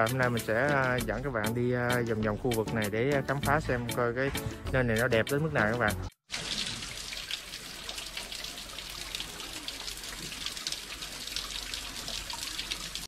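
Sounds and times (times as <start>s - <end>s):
waterfall splashing onto rocks: 6.3s - 13.0s.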